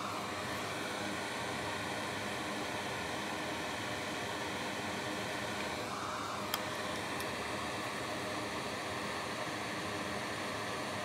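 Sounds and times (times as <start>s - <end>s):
fan-like hiss: 0.0s - 11.0s.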